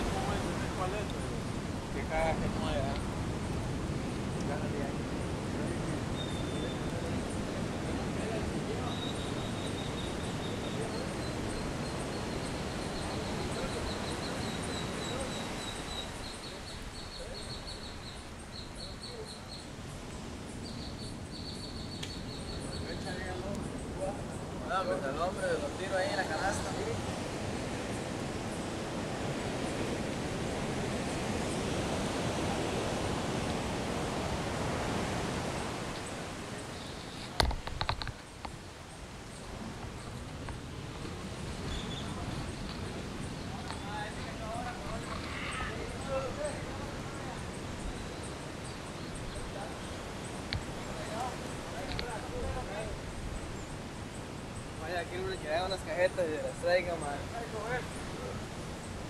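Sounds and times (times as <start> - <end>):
ocean surf washing on beach: 0.0 - 59.0.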